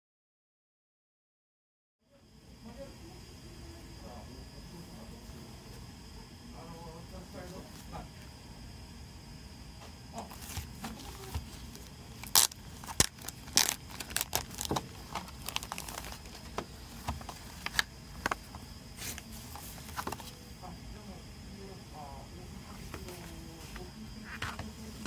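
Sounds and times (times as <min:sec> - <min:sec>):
cellophane wrap crinkling: 0:10.3 - 0:19.2.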